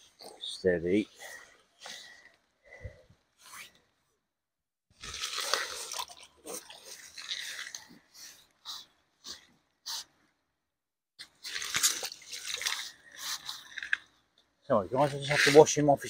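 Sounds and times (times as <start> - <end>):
rustling handling noises: 11.2 - 16.0.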